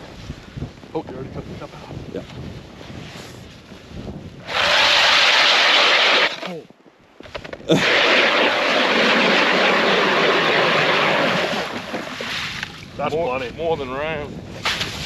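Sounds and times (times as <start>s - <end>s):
power ice auger drilling: 4.5s - 6.6s.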